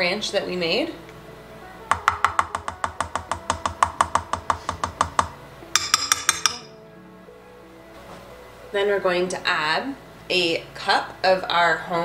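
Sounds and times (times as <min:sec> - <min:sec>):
spoon tapping plastic cup: 0:01.9 - 0:06.7.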